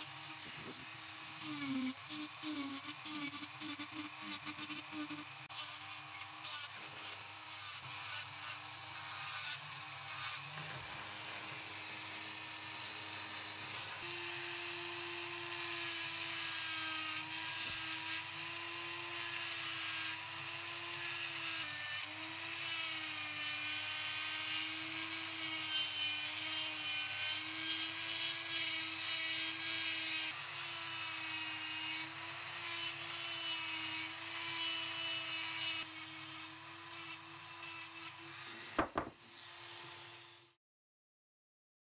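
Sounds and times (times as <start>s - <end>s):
rotary tool motor whine: 0.0s - 40.6s.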